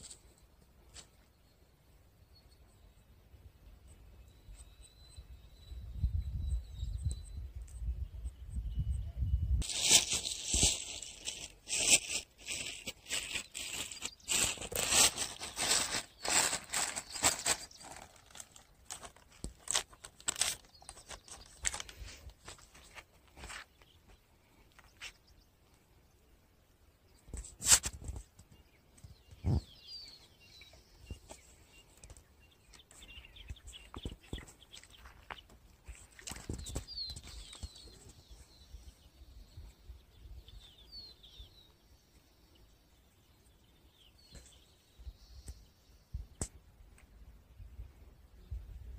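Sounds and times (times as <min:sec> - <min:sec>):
birds chirping: 0:00.0 - 0:48.6
footsteps on gravel: 0:11.9 - 0:24.2, 0:33.8 - 0:37.9.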